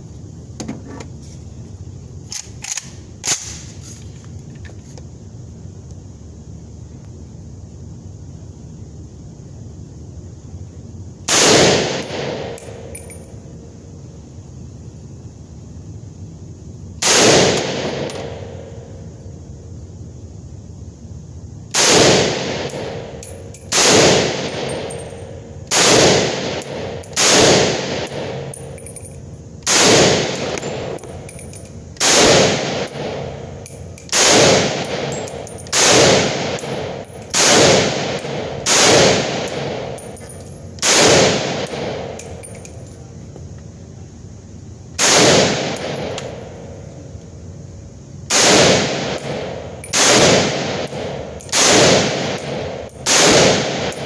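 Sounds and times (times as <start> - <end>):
rifle shots echoing indoors: 11.3 - 13.1, 17.0 - 18.7, 21.7 - 42.6, 45.0 - 46.4, 48.3 - 54.0.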